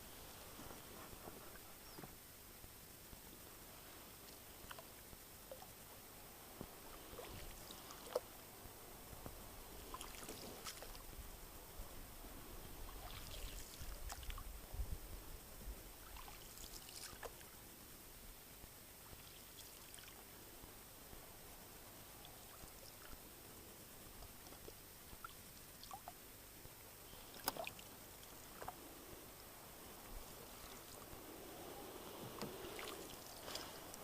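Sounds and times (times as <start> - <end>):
paddle splashes: 6.6 - 11.2, 12.6 - 14.5, 16.0 - 17.6, 27.1 - 34.0.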